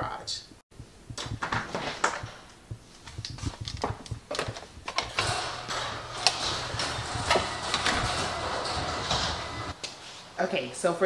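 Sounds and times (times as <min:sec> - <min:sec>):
knocks and clicks: 0:00.8 - 0:09.8
footsteps: 0:00.8 - 0:10.3
interior door opening: 0:01.2 - 0:09.8
garage door opener humming: 0:03.4 - 0:09.8.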